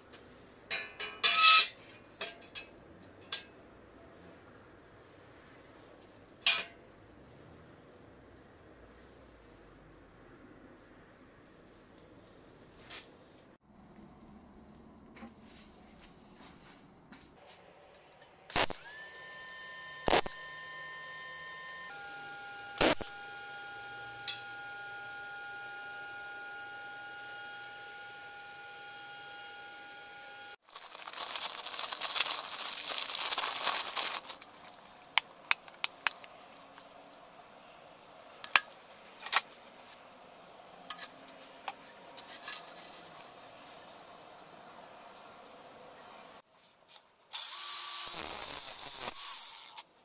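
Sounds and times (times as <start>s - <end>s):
welding machine electrical whine: 18.5s - 34.4s, 47.3s - 49.8s
plastic packaging crinkling and tearing: 30.6s - 36.3s.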